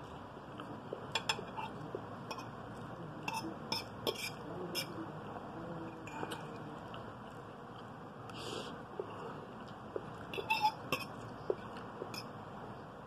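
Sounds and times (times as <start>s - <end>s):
fork clinking against plate: 10.3s - 11.2s.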